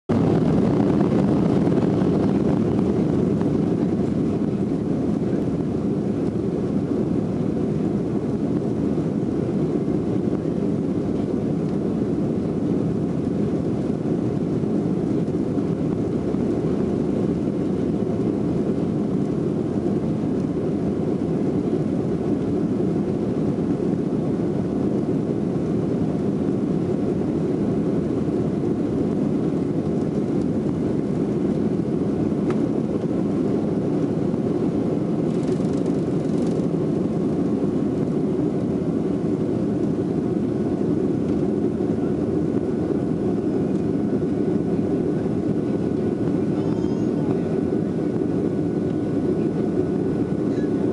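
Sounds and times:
jet engines rumbling inside cabin: 0.1s - 50.9s.

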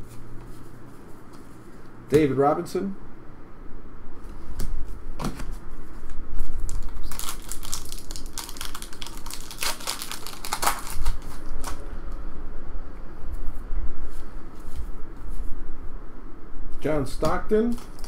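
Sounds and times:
foil wrapper crinkling and tearing: 6.5s - 11.8s, 17.7s - 18.0s.

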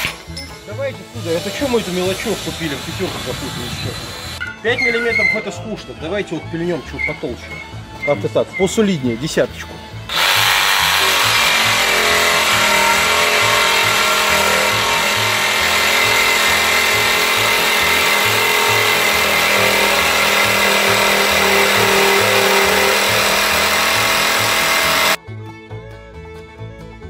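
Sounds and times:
jigsaw cutting steel: 1.1s - 4.4s, 10.1s - 25.2s.

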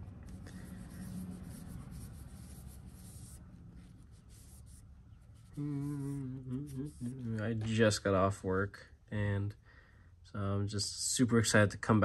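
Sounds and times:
man humming long note: 5.5s - 7.4s.

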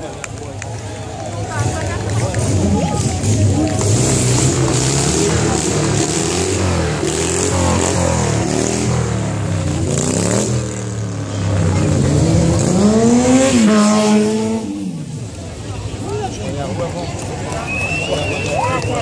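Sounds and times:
motorcycle engine revving: 1.4s - 15.4s.

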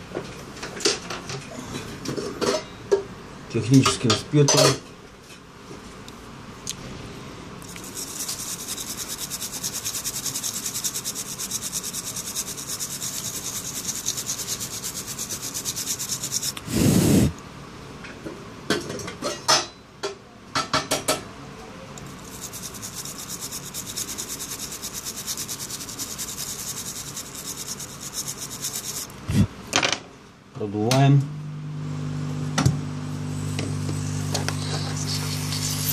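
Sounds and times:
scrubbing circuit board: 22.0s - 29.5s.

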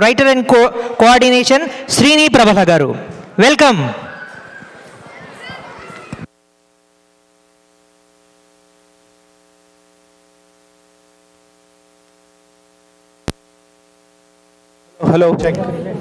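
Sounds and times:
sound system hum and hiss: 0.0s - 16.0s.

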